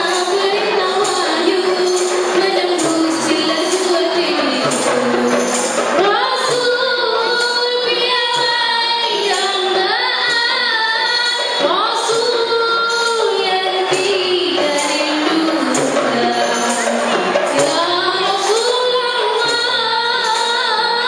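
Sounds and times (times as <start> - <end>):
frame drums and jingles: 0.0 - 21.0
women singing in unison: 0.0 - 21.0.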